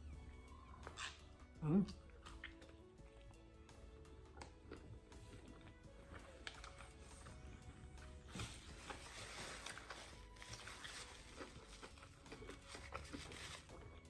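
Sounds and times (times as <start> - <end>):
biting and chewing: 0.5 - 14.0
soft rustling and crunching: 8.2 - 14.0.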